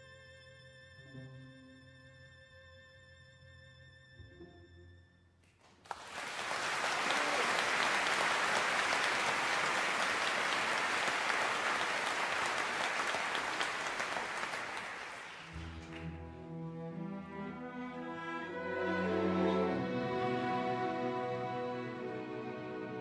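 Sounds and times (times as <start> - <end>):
audience applauding: 5.6 - 16.4
orchestra strings: 6.3 - 23.0.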